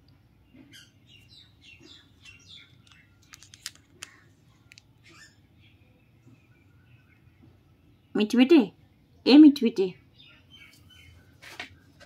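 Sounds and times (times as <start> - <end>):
parakeets chirping: 0.6 - 7.1.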